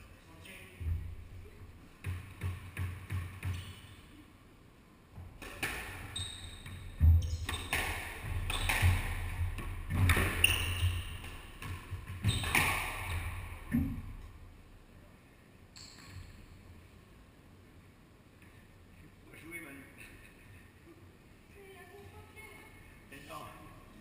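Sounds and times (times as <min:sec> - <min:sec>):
squash ball hits off walls: 0:02.0 - 0:03.6, 0:05.2 - 0:14.1
shoes squeaking on court floor: 0:02.4 - 0:04.0, 0:05.9 - 0:09.2, 0:09.9 - 0:13.4.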